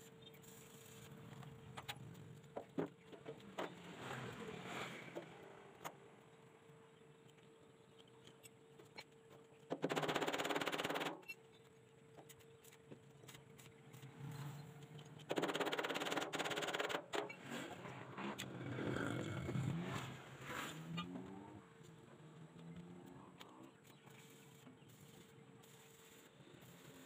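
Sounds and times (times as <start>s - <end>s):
arc welding crackle: 23.4s - 27.0s.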